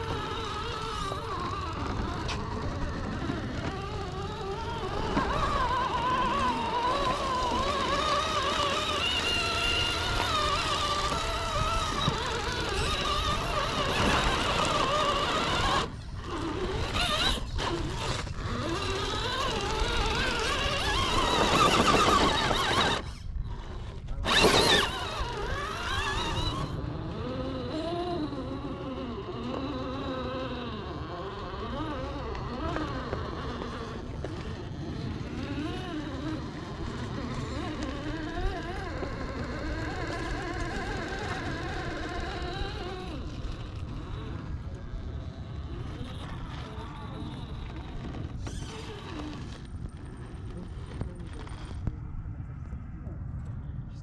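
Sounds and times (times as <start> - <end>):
electric motor whine: 0.0 - 52.1.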